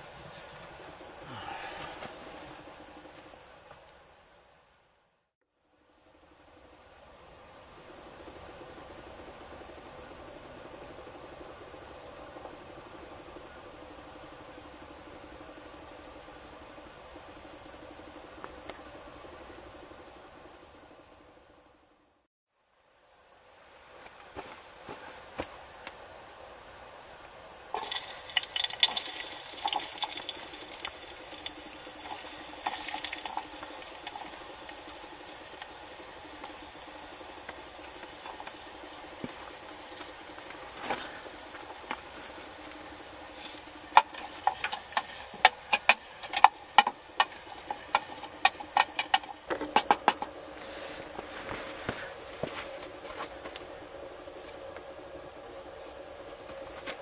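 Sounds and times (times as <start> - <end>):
watery hiss in pot: 27.7 - 49.3
sharp clicks against metal pot: 43.9 - 50.3.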